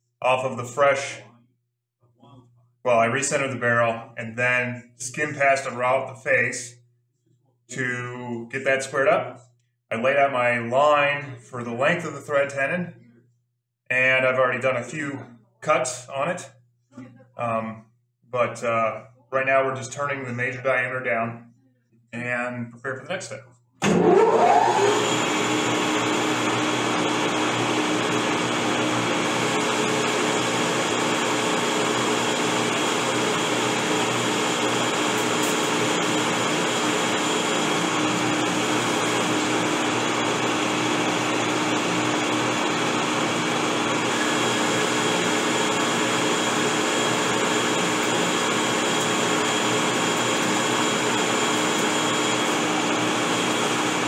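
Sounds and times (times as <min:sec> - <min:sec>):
metal lathe whirring: 0:23.8 - 0:54.0.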